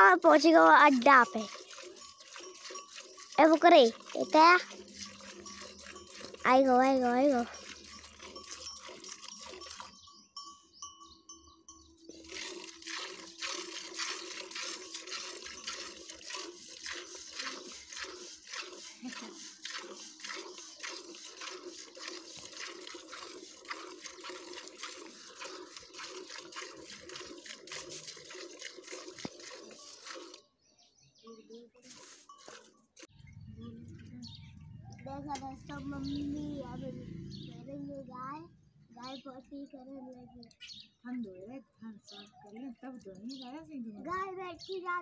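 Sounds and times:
milk squirting into a bucket: 0.1s - 10.0s, 12.1s - 30.5s.

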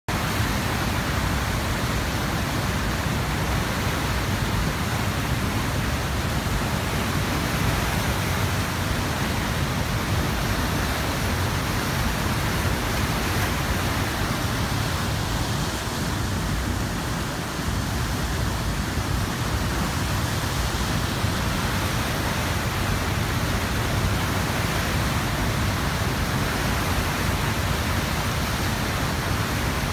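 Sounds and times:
waterfall rushing: 0.1s - 29.9s.

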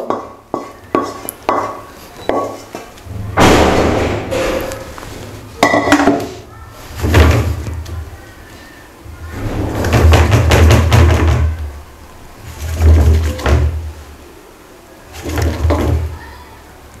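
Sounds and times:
spatula scraping and tapping: 0.0s - 2.9s.

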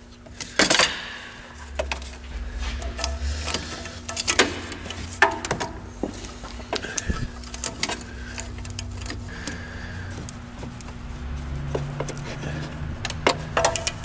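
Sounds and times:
low rumble: 1.1s - 5.2s.

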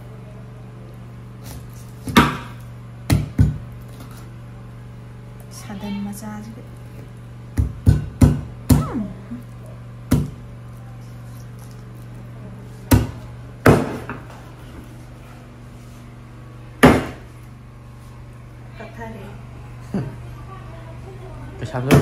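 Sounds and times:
knife chopping on wooden board: 1.4s - 2.5s, 3.1s - 3.6s, 7.6s - 8.9s, 10.1s - 10.4s, 12.9s - 14.2s, 16.8s - 17.2s.

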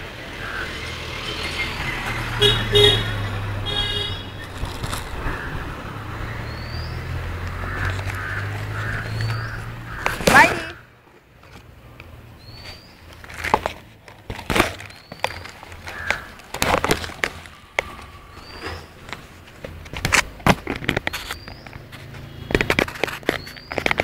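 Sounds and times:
bird chirping: 0.4s - 10.2s, 12.0s - 13.5s, 14.8s - 16.4s, 17.4s - 19.3s, 20.9s - 24.0s
plastic bags rustling: 4.4s - 5.4s, 12.6s - 22.1s.

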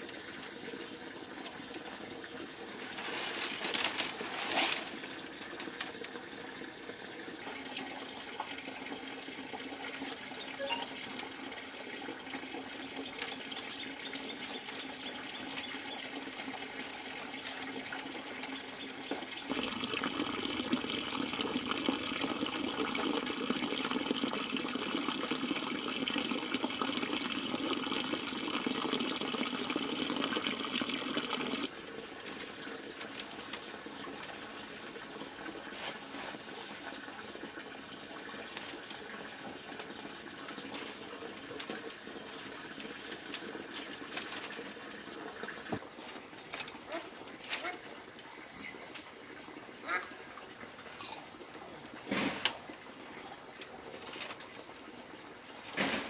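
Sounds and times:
water running: 0.0s - 56.0s.

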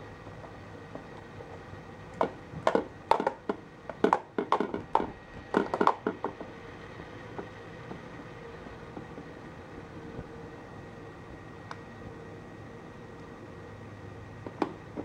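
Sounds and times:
plastic ball clattering in track: 2.2s - 6.5s.

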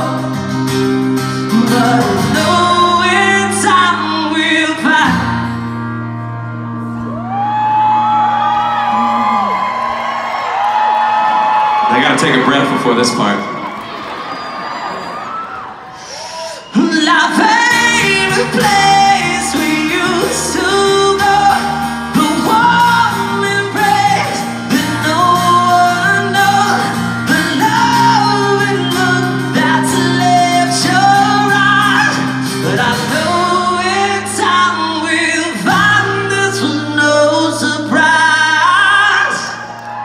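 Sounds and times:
man singing: 0.0s - 5.5s, 16.7s - 39.7s
acoustic guitar strumming: 0.0s - 10.2s, 16.8s - 39.2s.

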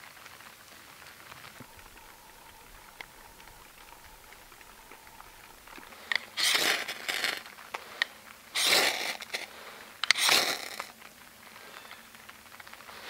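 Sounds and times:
scraping rustling bursts: 1.4s - 11.0s
sharp clicks: 1.6s - 11.2s.

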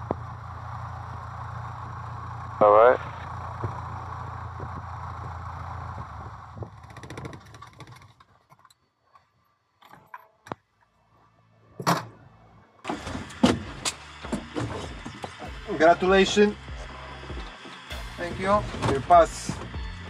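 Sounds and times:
small plane engine idling: 0.0s - 8.4s, 12.8s - 20.0s.

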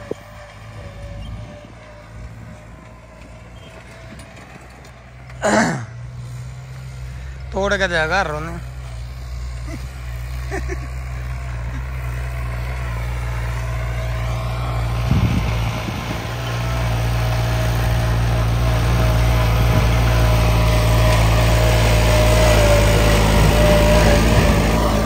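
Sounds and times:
tractor diesel engine running hard: 0.0s - 25.0s
whine over engine: 13.0s - 25.0s.

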